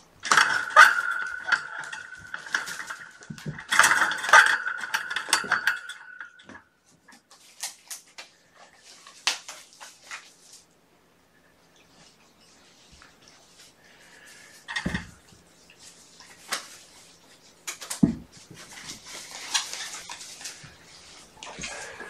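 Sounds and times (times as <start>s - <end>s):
dishes clinking and clattering: 0.2s - 6.6s.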